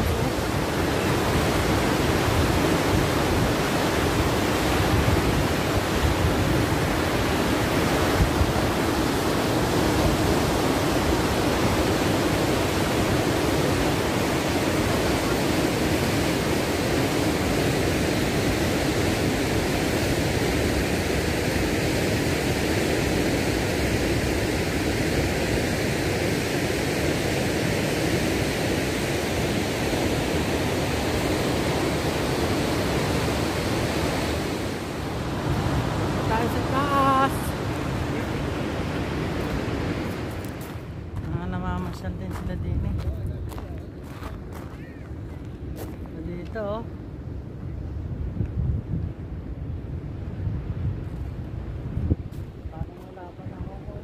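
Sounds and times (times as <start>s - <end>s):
water rushing over spillway: 0.0s - 40.8s.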